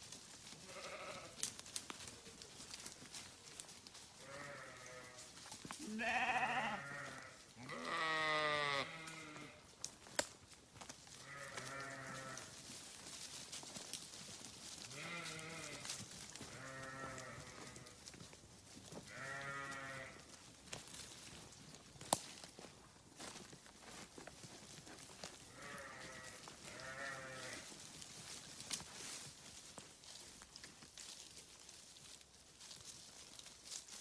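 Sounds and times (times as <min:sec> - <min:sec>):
sheep bleating: 0:00.6 - 0:01.4, 0:04.2 - 0:05.2, 0:05.8 - 0:09.6, 0:11.2 - 0:12.5, 0:14.9 - 0:18.0, 0:19.1 - 0:20.3, 0:25.5 - 0:27.7.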